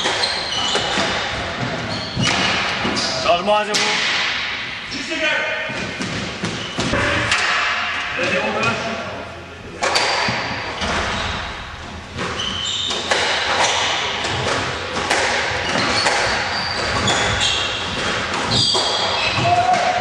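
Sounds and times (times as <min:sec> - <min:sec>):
shoes squeaking on wooden floor: 0:00.0 - 0:03.3, 0:06.4 - 0:07.0, 0:09.9 - 0:13.7, 0:15.5 - 0:19.6
squash ball smacking rackets and walls: 0:00.0 - 0:04.8, 0:05.6 - 0:08.8, 0:09.7 - 0:20.0.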